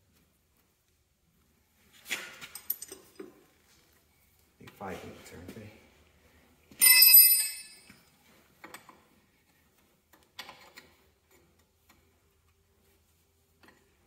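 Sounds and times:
wrench ringing on concrete: 6.8s - 8.0s.

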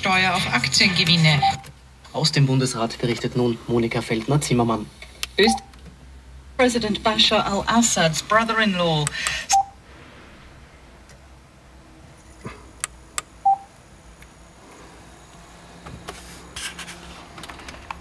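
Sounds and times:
radio speech: 0.0s - 5.8s, 6.6s - 9.6s
short electronic beeps: 1.4s - 1.6s, 5.4s - 5.7s, 9.5s - 9.8s, 13.4s - 13.7s.

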